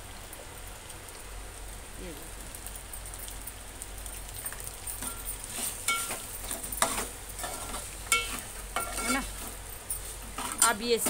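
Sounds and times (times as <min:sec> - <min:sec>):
sauce sizzling: 0:00.0 - 0:11.0
spoon scraping metal pot: 0:05.0 - 0:09.4, 0:10.3 - 0:11.0
spoon clinking against pot: 0:05.9 - 0:06.2, 0:06.8 - 0:09.3.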